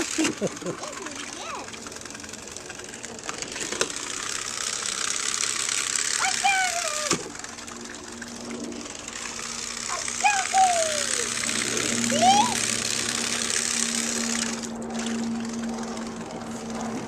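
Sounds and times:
motor-like drone: 0:00.0 - 0:17.0
gliding calls: 0:04.5 - 0:16.0.

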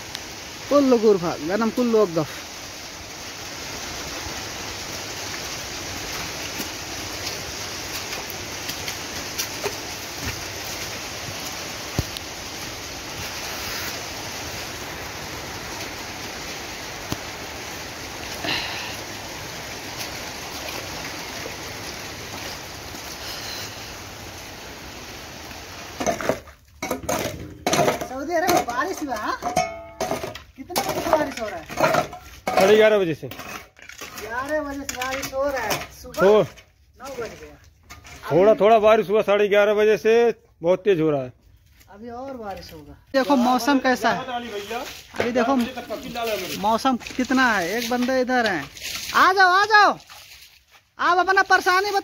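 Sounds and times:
steady rain falling: 0:00.0 - 0:52.0.

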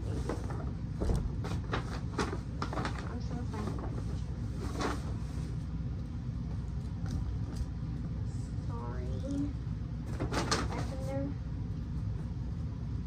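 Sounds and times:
paper bag rustling: 0:00.0 - 0:05.6.

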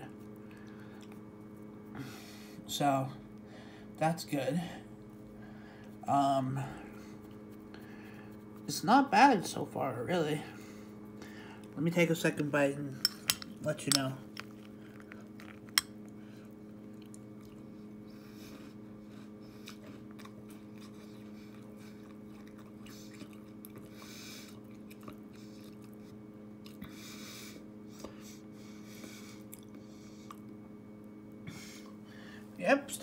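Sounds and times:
low steady hum: 0:00.0 - 0:33.0
person chewing cereal: 0:14.2 - 0:18.0, 0:18.6 - 0:27.0, 0:28.8 - 0:30.6.

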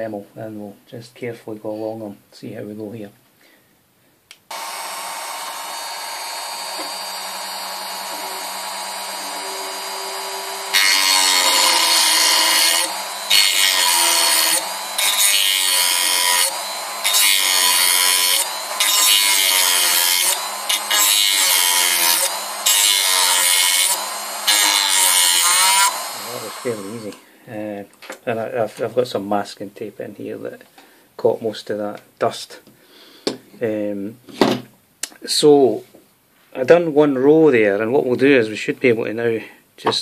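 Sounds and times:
rotary tool cutting metal pins: 0:04.5 - 0:27.2
rotary tool motor whining: 0:04.5 - 0:27.2.

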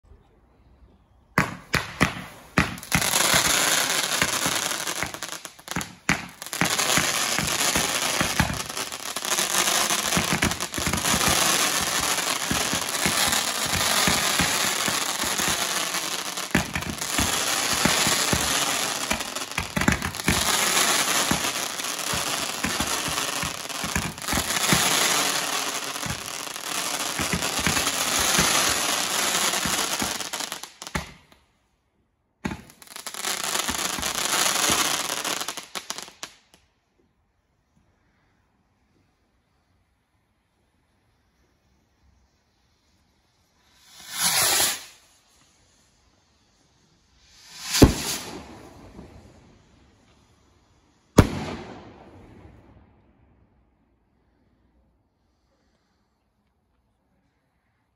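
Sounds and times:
firework barrage firing: 0:01.4 - 0:31.2, 0:47.5 - 0:49.3, 0:51.2 - 0:52.7.

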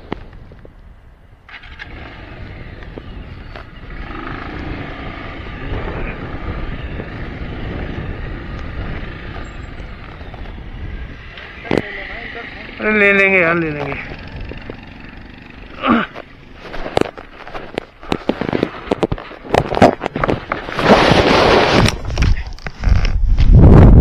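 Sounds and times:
motorcycle engine running: 0:01.5 - 0:20.7
tyres on rocky gravel: 0:01.5 - 0:23.6.

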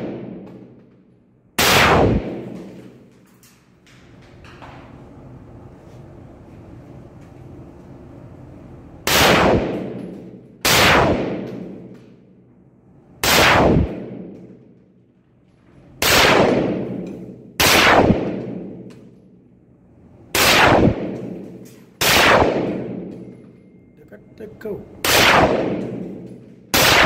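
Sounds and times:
carbine gunshots with echo: 0:00.0 - 0:00.8, 0:01.6 - 0:03.1, 0:09.0 - 0:12.0, 0:13.2 - 0:14.7, 0:16.0 - 0:19.2, 0:20.3 - 0:23.4, 0:25.0 - 0:27.0.

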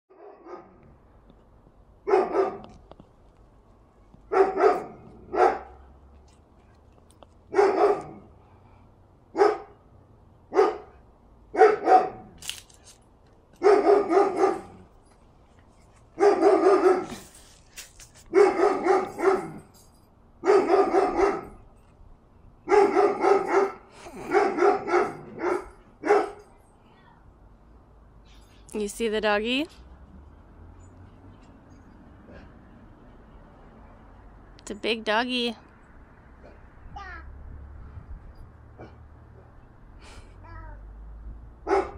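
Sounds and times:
big dog barking: 0:00.1 - 0:00.8, 0:02.0 - 0:02.8, 0:04.3 - 0:05.8, 0:07.5 - 0:08.3, 0:09.3 - 0:09.8, 0:10.5 - 0:12.3, 0:13.6 - 0:14.9, 0:16.1 - 0:17.2, 0:18.2 - 0:19.7, 0:20.4 - 0:21.6, 0:22.6 - 0:26.5, 0:41.6 - 0:41.9.

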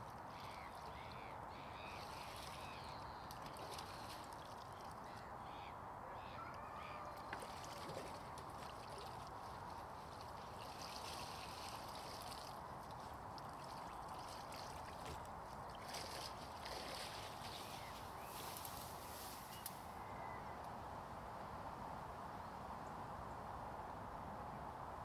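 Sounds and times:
water trickling and splashing: 0:00.0 - 0:05.3, 0:06.9 - 0:19.3.

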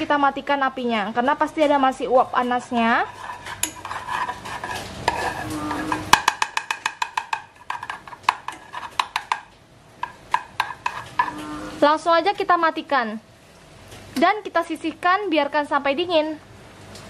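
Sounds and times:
spoon scraping metal pot: 0:02.9 - 0:09.4, 0:10.0 - 0:11.8
spoon clinking against pot: 0:05.1 - 0:11.4.

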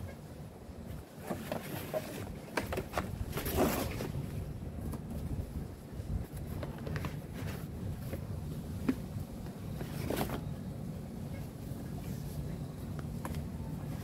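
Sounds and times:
cardboard crunching: 0:01.2 - 0:05.4.

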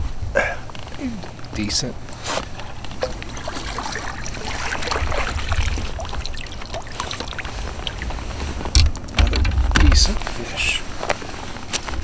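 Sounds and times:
water splashing: 0:02.7 - 0:10.2
water draining from net: 0:03.0 - 0:08.4.

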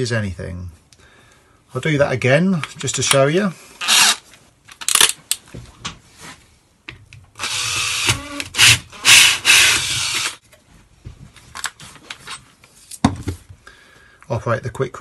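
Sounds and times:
power drill cutting hardboard: 0:07.4 - 0:10.4.

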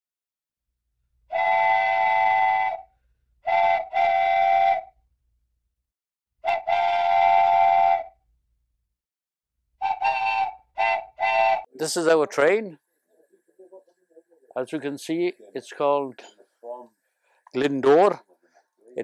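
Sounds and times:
steam locomotive whistle: 0:01.3 - 0:05.0, 0:06.4 - 0:08.2, 0:09.8 - 0:11.7.

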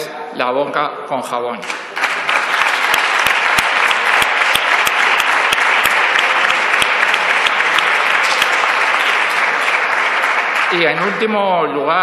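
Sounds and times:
sharp individual claps: 0:01.6 - 0:11.3
group applause: 0:01.6 - 0:12.0.

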